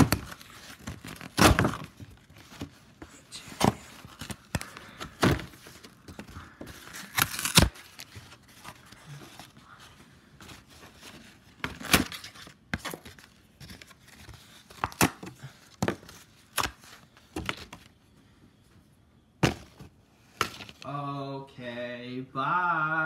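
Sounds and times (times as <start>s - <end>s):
cardboard ripping: 0.0s - 2.8s, 3.6s - 8.8s
cardboard rustling and scraping: 0.0s - 18.0s.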